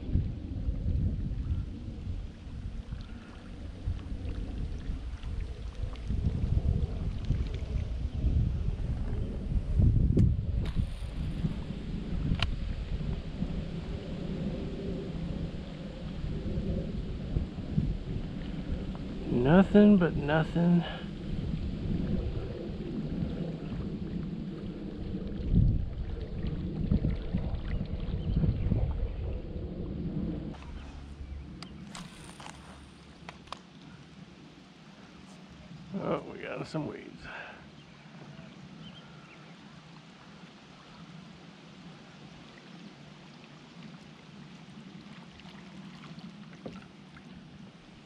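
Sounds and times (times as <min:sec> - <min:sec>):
wind buffeting microphone: 0:00.0 - 0:34.4
steady low drone: 0:00.0 - 0:42.6
water lapping against kayak hull: 0:00.0 - 0:48.0.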